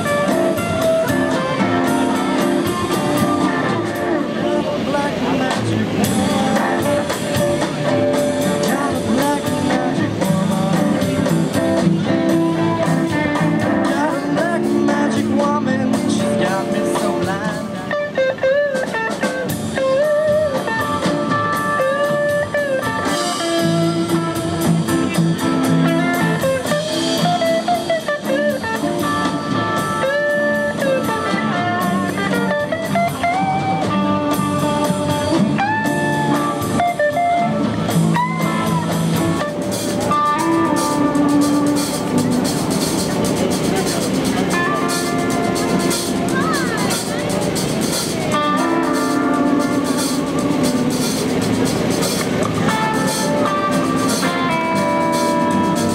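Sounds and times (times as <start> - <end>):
electric guitar solo: 0.0 - 55.9
rock band playing blues: 0.0 - 55.9
person singing: 3.9 - 18.4.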